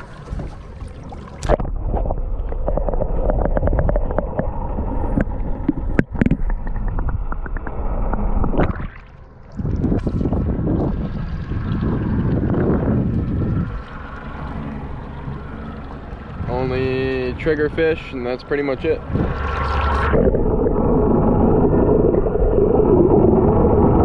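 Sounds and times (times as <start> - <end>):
muffled underwater churning: 0.0 - 24.0
wind: 0.0 - 24.0
sharp underwater clicks: 1.3 - 10.1.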